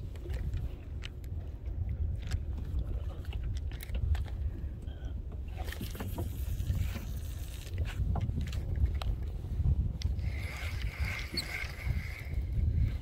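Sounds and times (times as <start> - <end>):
water moving around kayak: 0.0 - 13.0
wind rumbling on microphone: 0.0 - 13.0
fishing gear clicking: 10.0 - 12.4.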